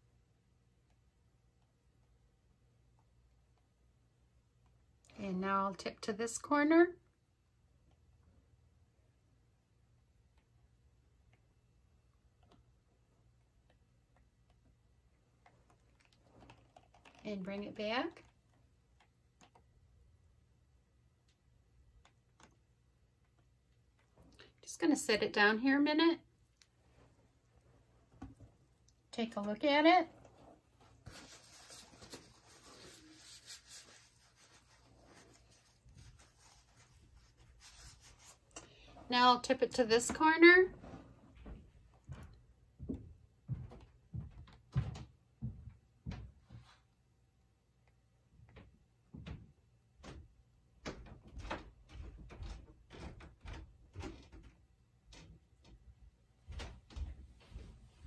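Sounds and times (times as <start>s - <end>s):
faint scratching and rustling: 26.6s - 41.9s.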